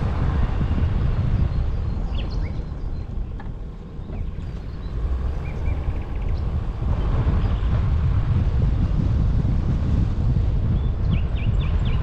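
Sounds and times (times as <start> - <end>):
wind and road noise rumble: 0.0 - 12.0.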